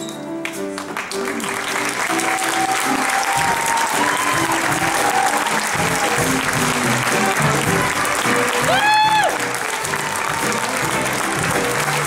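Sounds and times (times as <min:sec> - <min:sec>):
show accompaniment music: 0:00.0 - 0:12.0
audience applauding: 0:00.4 - 0:12.0
voices cheering: 0:02.0 - 0:11.8.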